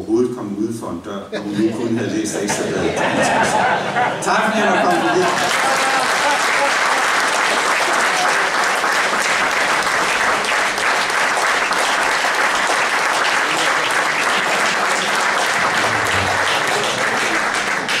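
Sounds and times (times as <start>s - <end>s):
audience applauding: 4.9s - 18.0s.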